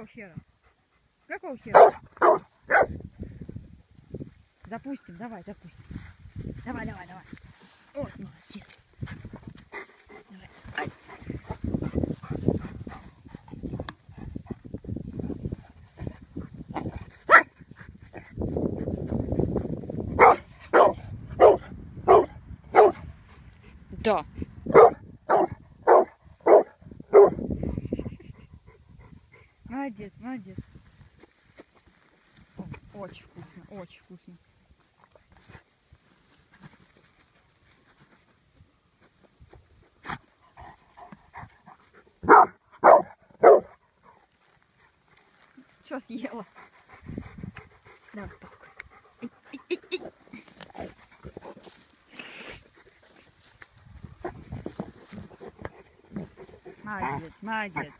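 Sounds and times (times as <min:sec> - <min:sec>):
dog barking: 0:01.7 - 0:02.9, 0:17.3 - 0:17.5, 0:20.2 - 0:23.0, 0:24.7 - 0:27.4, 0:42.2 - 0:43.7.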